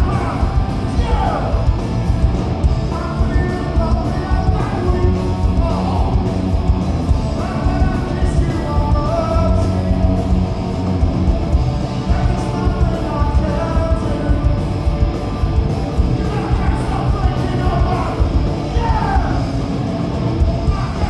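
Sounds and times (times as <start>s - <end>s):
punk rock band playing live: 0.0s - 21.0s
man singing into a microphone: 7.4s - 9.8s, 12.1s - 14.7s.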